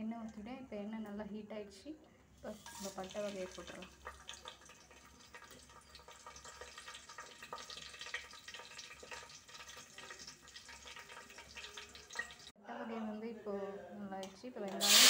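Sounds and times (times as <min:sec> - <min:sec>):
spices sizzling in hot oil: 0:02.4 - 0:12.6, 0:14.8 - 0:15.0.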